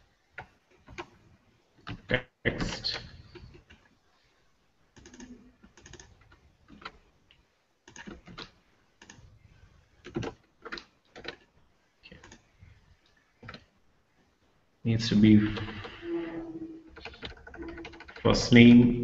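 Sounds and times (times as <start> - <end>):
typing on computer keyboard: 0.3 - 1.2, 5.0 - 7.0, 7.8 - 9.2, 10.0 - 11.5, 12.1 - 12.4, 13.4 - 13.7, 16.9 - 18.4.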